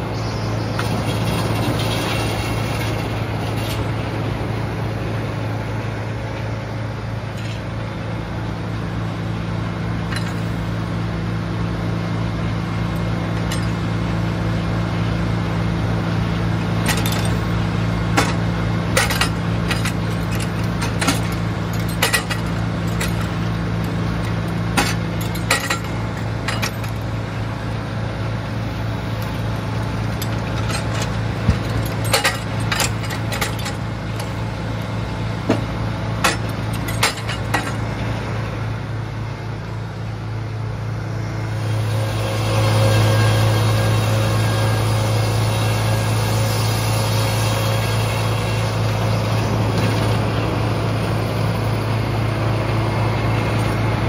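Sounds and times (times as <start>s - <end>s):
sawmill engine humming: 0.0s - 54.0s
metallic clinks and knocks: 19.0s - 23.4s, 24.8s - 27.0s.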